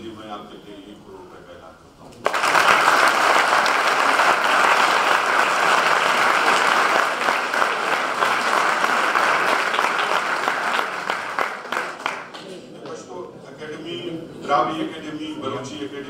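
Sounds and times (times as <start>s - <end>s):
audience applauding: 2.2s - 13.0s.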